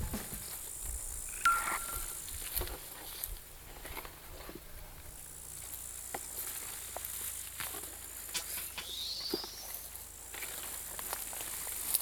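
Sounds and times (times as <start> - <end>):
short rising whistle: 8.8 - 9.9.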